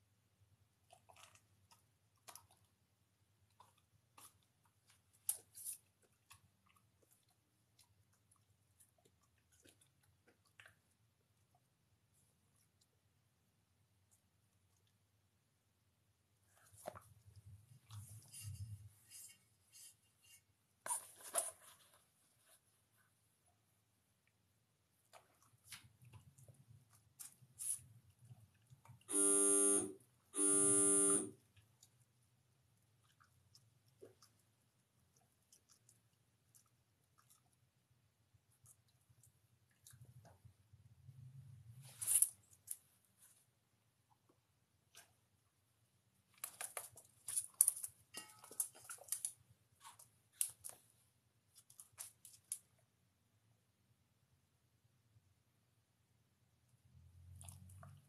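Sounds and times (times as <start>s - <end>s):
electronic buzzer: 29.1s - 31.4s.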